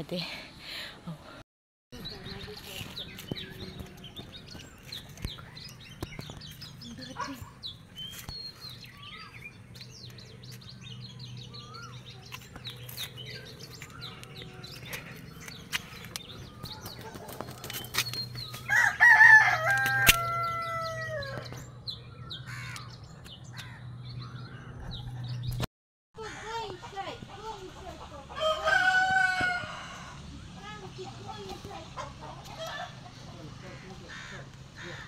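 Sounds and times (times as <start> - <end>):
small birds chirping: 2.0 - 19.0, 19.9 - 28.4
rooster crowing: 18.7 - 21.5, 28.4 - 30.2.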